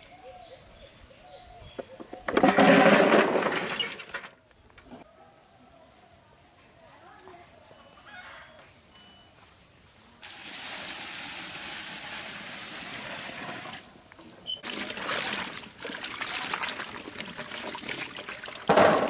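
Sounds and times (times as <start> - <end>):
water pouring: 10.2 - 19.0
water splashing and trickling: 10.2 - 19.0.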